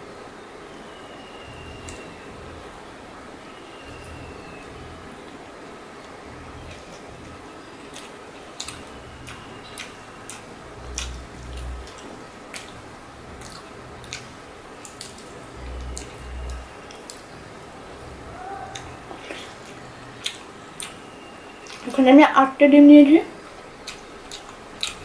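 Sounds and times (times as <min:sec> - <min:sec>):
wet chewing with mouth clicks: 0:07.8 - 0:17.4, 0:18.6 - 0:22.0, 0:23.4 - 0:25.0.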